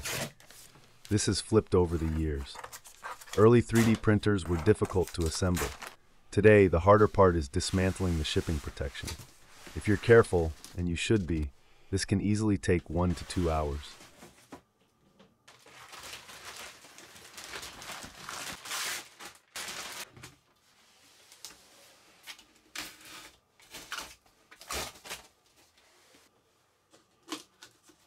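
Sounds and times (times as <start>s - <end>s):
plastic film and cardboard crinkling: 0.0s - 6.0s, 15.5s - 21.6s.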